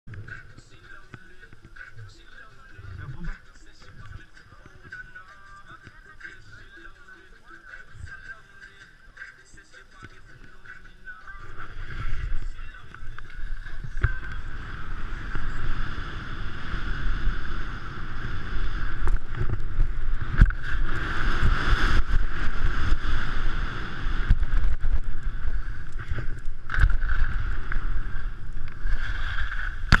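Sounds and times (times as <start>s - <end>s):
skis scraping over snow: 11.4s - 29.9s
wind buffeting microphone: 11.4s - 30.0s.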